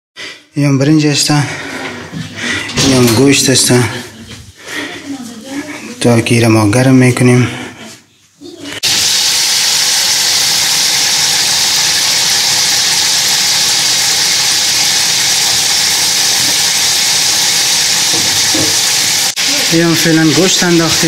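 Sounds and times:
meat sizzling in hot oil: 8.8 - 21.0.

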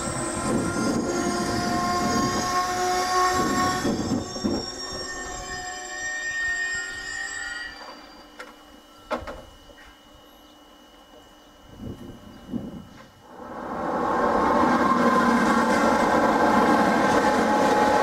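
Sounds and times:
train wheel rumble: 0.0 - 6.6, 12.8 - 18.0
train brakes squealing: 0.0 - 9.1, 14.7 - 18.0.

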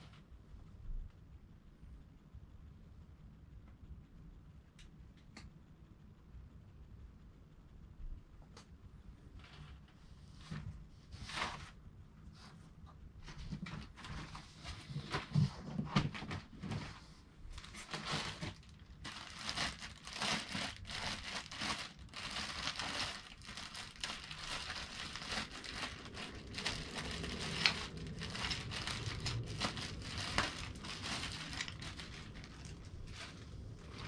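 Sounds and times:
cardboard and foam rubbing: 13.2 - 34.0
plastic bag crinkling: 17.5 - 34.0.

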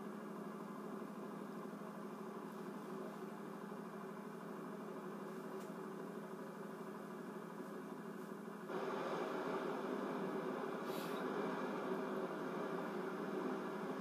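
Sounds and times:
engine drone through tv speaker: 8.7 - 14.0.

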